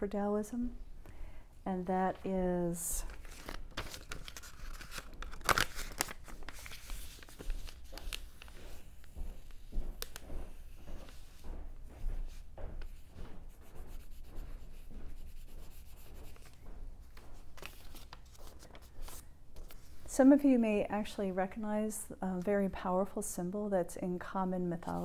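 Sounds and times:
paper rustling and crinkling: 2.9 - 10.2, 15.8 - 20.1.

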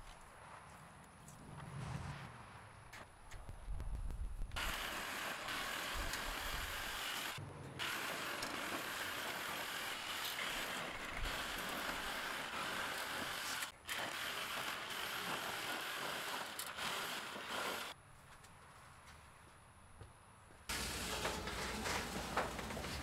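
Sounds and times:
power tool cutting metal: 4.6 - 18.0.

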